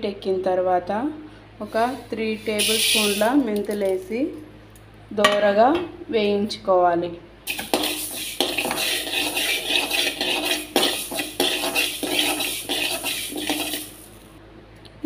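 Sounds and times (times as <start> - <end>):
metal spatula scraping pan: 1.7 - 3.3, 7.5 - 14.2
seeds rattling on metal: 7.5 - 14.3.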